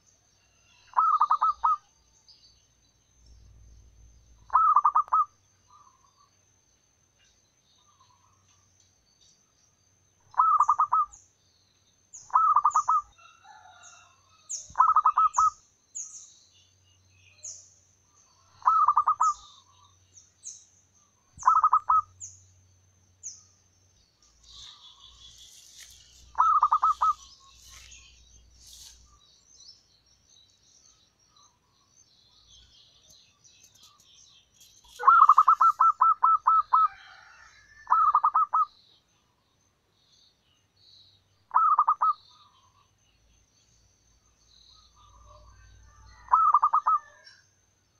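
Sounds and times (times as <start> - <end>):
dove cooing trills: 0.8 - 1.9, 4.5 - 6.0, 10.3 - 11.1, 12.3 - 13.2, 14.8 - 15.6, 18.4 - 19.7, 21.4 - 22.1, 26.3 - 27.4, 34.9 - 38.7, 41.5 - 42.7, 46.2 - 47.3
high falling bird chirps: 21.0 - 22.6, 23.3 - 38.8.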